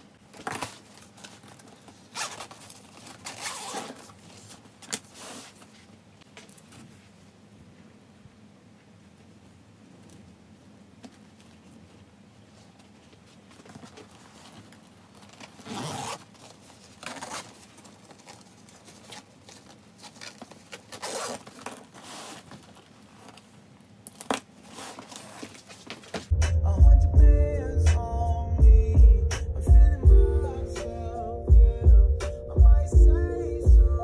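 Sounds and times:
fabric rasps and rustles: 0:00.8 - 0:06.0, 0:11.5 - 0:23.6, 0:24.6 - 0:26.3.

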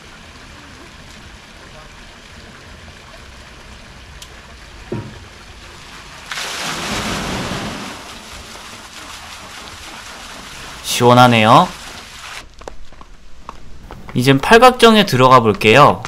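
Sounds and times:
water gushing and splashing: 0:00.0 - 0:12.5.

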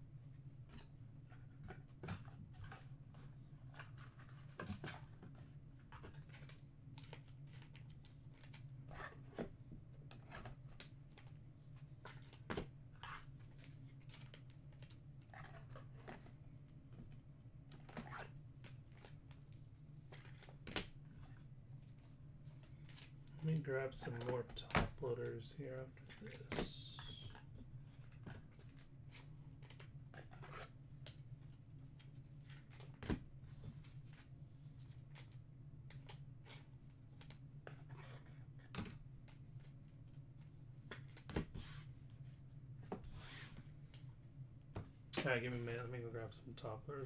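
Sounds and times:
low steady hum: 0:00.0 - 0:47.0
cards and packaging rustling: 0:10.1 - 0:21.5, 0:22.6 - 0:42.0.

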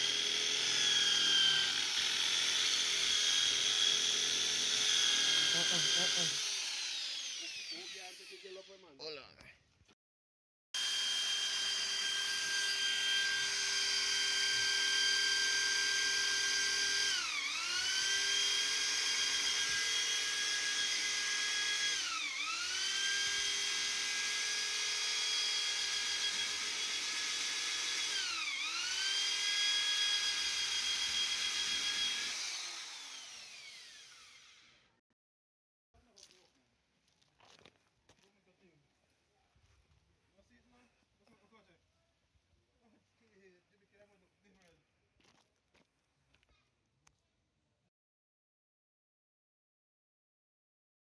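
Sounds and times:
electric drill motor whine: 0:00.0 - 0:08.8, 0:10.8 - 0:34.9.

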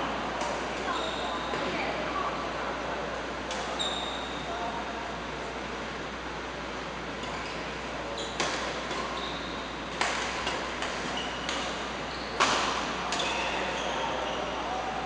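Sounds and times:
shoes squeaking on court floor: 0:00.7 - 0:01.8, 0:03.6 - 0:04.5, 0:07.2 - 0:14.8
rackets striking shuttlecock: 0:09.9 - 0:11.8, 0:12.4 - 0:13.5.

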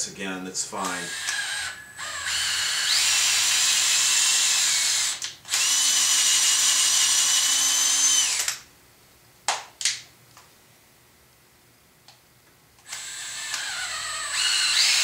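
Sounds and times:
cordless drill motor whining: 0:00.8 - 0:08.6, 0:12.8 - 0:15.0.

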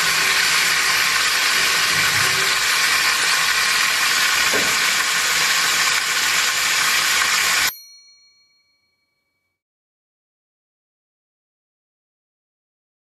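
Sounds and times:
fish sizzling in oil: 0:00.0 - 0:07.7.

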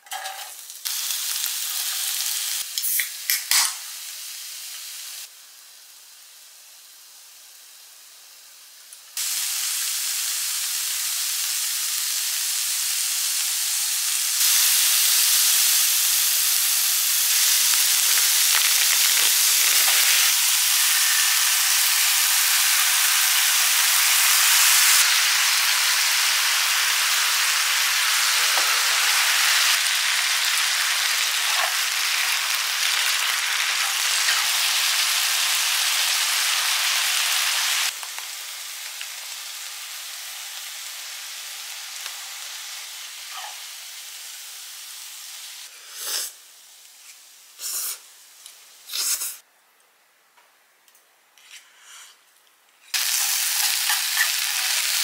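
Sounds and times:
vegetables sizzling in hot oil: 0:00.1 - 0:49.4, 0:52.9 - 0:55.0.

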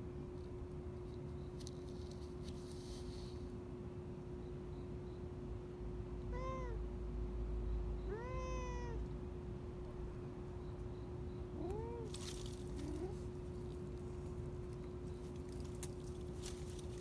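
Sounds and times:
cat meowing: 0:06.3 - 0:06.8, 0:08.1 - 0:09.1, 0:11.6 - 0:12.2.

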